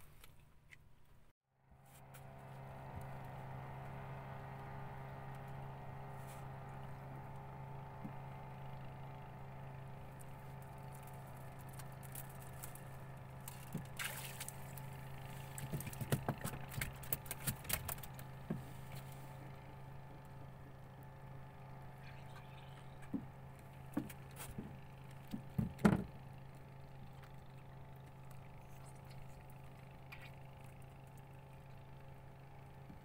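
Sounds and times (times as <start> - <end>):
steady low hum: 0.0 - 33.0
fish thrashing and splashing: 11.2 - 18.3.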